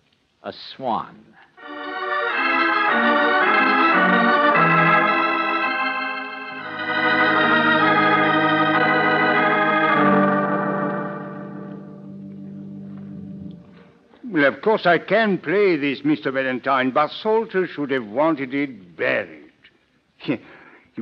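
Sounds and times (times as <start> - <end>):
organ chords: 1.6 - 14.7.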